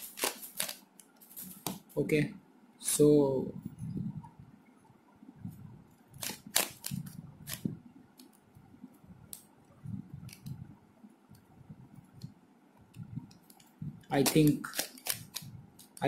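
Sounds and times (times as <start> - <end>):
puzzle cube plastic clicks: 0.0 - 0.8, 13.4 - 16.0.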